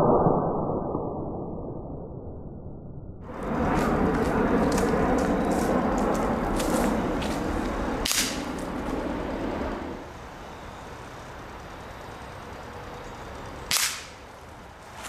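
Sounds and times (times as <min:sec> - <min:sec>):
pellet rifle shot cracking: 0:08.0 - 0:08.7, 0:13.7 - 0:14.3.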